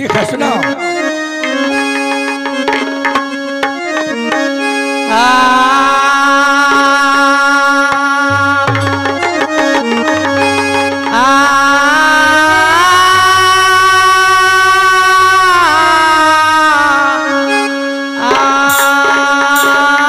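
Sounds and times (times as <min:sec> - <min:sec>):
held keyboard notes: 0:00.0 - 0:20.0
man singing into microphone: 0:05.0 - 0:10.3, 0:11.0 - 0:20.0
hand drum strokes: 0:18.3 - 0:20.0.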